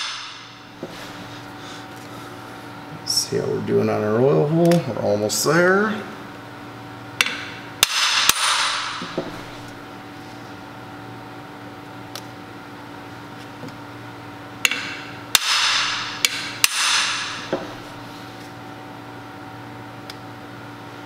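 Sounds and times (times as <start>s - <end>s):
hammer striking metal bar: 0.0s - 0.6s, 7.2s - 9.3s, 14.6s - 17.7s.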